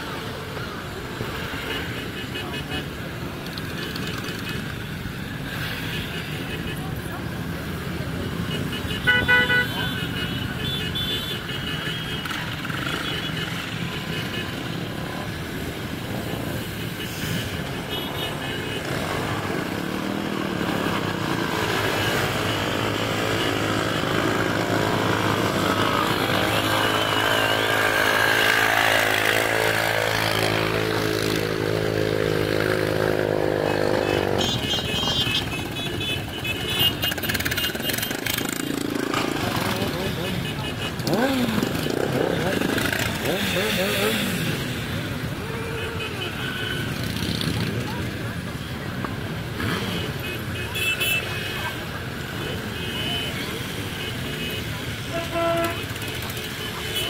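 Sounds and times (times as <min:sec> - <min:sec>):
motorcycles riding past: 0:11.4 - 0:57.0.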